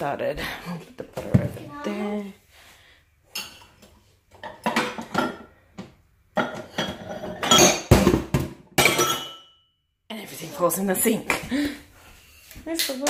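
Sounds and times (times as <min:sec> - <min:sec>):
dishes and cutlery clattering: 0:03.3 - 0:05.6, 0:06.4 - 0:09.6.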